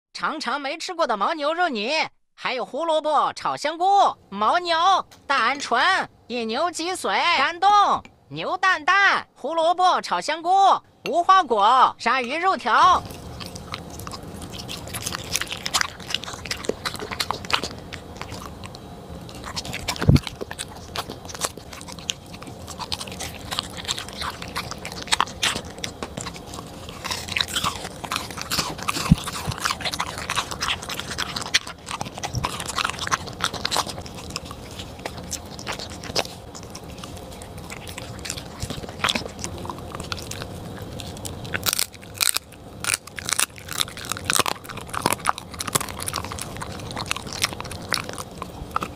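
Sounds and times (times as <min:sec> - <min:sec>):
dog crunching dried treat: 0:12.1 - 0:48.9
dog chewing wetly: 0:12.5 - 0:48.9.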